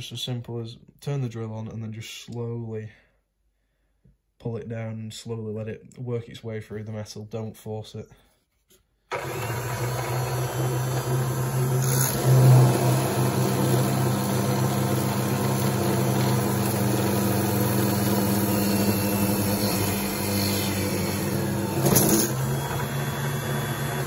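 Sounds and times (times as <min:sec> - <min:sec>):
drill press drilling metal: 0:09.1 - 0:24.0.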